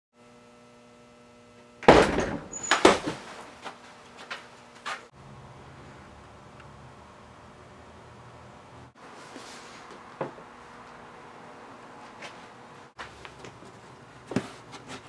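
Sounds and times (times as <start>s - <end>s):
wooden door banging: 1.8s - 3.3s.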